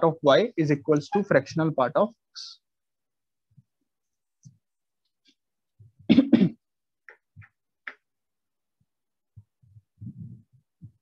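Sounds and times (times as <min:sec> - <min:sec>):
man clearing his throat: 0:06.1 - 0:06.6.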